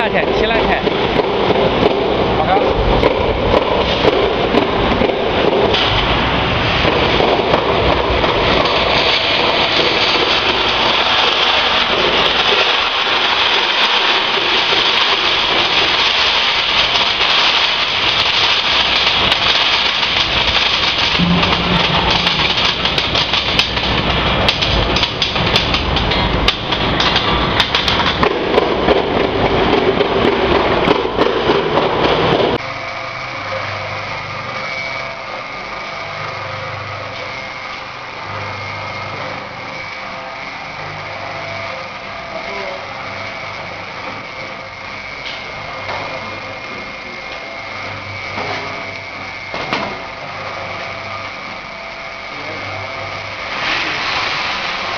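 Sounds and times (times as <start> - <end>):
roaster motor humming: 0.0 - 54.9
peanuts rattling and pouring: 7.7 - 28.0.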